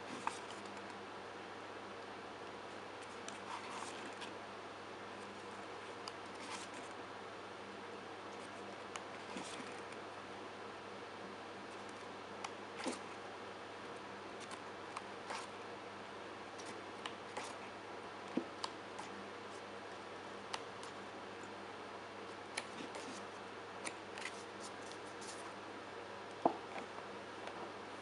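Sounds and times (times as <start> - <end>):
paper pages rustling: 23.8 - 25.5.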